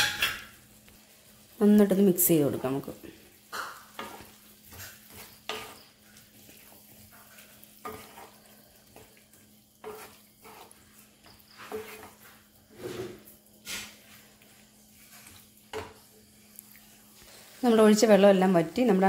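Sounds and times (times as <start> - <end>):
faint sizzle: 0.0 - 19.0
spatula scraping a pan: 3.1 - 17.7.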